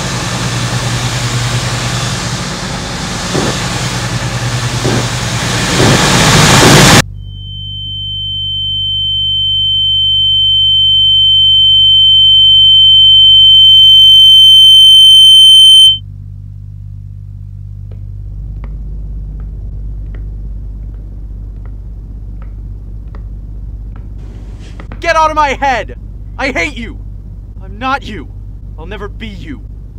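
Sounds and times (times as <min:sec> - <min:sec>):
low hum: 0:00.0 - 0:29.9
high-pitched sine tone: 0:06.6 - 0:16.1.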